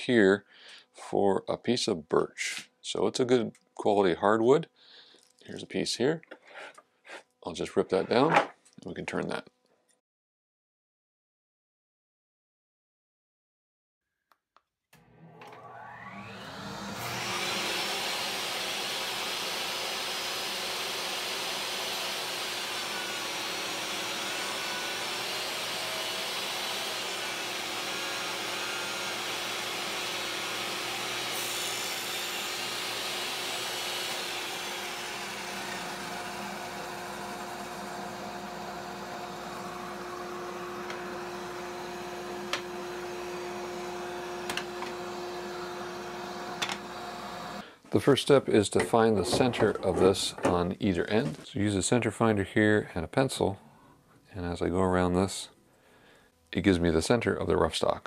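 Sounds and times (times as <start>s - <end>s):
saw motor humming: 15.0s - 47.7s
table saw cutting wood: 15.0s - 47.7s, 48.7s - 51.0s.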